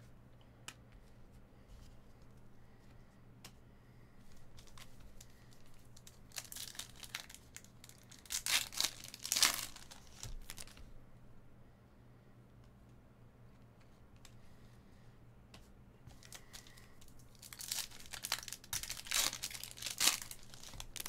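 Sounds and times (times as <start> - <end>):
foil wrapper tearing and crinkling: 6.0 - 10.8, 16.2 - 21.0.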